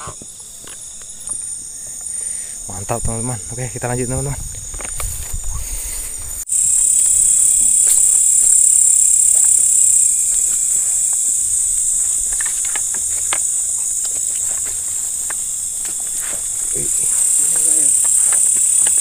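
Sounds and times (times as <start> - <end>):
night insects chirping: 0.0 - 19.0
rustling of grass and brush: 3.6 - 19.0
footsteps: 4.4 - 8.2, 10.3 - 19.0.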